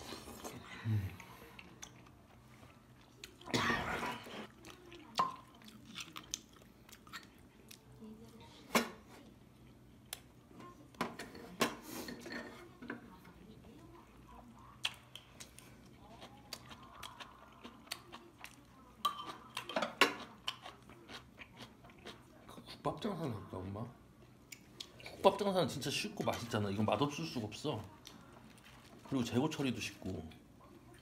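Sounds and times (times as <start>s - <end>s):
person chewing: 1.2s - 3.5s, 4.2s - 8.0s, 14.6s - 22.6s.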